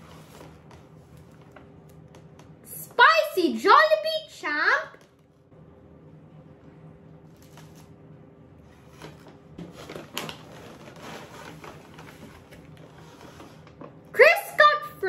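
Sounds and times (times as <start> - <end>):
paper bag rustling and crinkling: 0.0 - 1.7, 8.7 - 13.8.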